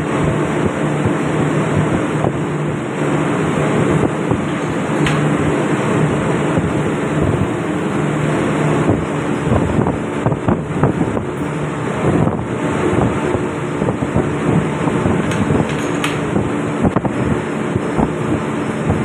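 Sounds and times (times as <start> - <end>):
engine room machinery humming: 0.0 - 19.0
metallic clicks and knocks: 15.3 - 16.3.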